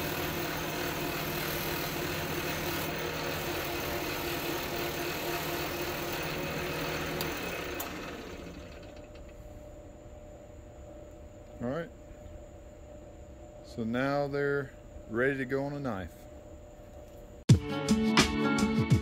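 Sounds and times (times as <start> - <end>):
lathe motor hum: 0.0 - 9.4.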